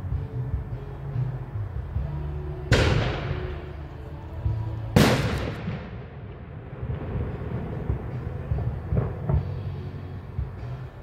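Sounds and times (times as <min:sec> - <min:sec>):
background music: 0:00.0 - 0:11.0
firework bangs echoing: 0:02.7 - 0:03.7, 0:05.0 - 0:09.7.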